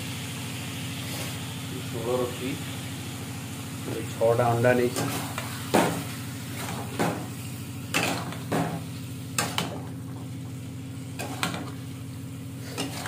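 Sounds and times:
metal spatula scraping a pan: 0:11.2 - 0:11.8, 0:12.6 - 0:13.0.

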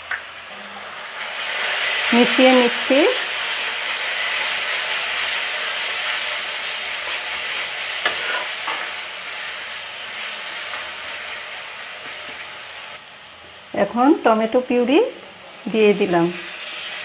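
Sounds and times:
masala sizzling in oil: 0:00.0 - 0:17.0
spatula scraping metal pan: 0:07.0 - 0:09.0.

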